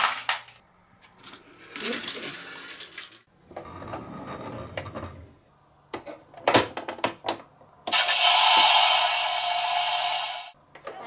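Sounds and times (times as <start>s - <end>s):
marble rolling on wooden track: 1.2s - 3.8s
loud steady sound: 7.9s - 10.6s.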